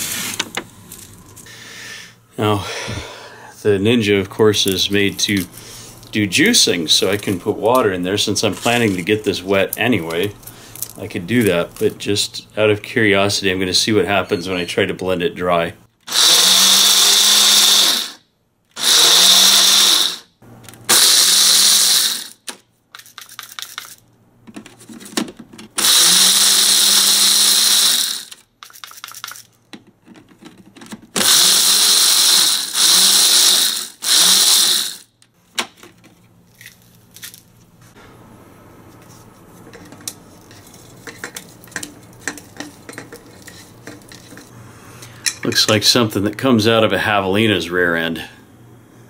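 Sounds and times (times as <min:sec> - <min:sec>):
blender grinding pods: 0:16.0 - 0:18.2, 0:18.8 - 0:20.3, 0:20.9 - 0:22.5, 0:25.8 - 0:29.4, 0:31.2 - 0:35.2
rattling in blender: 0:25.8 - 0:29.4, 0:31.1 - 0:35.0.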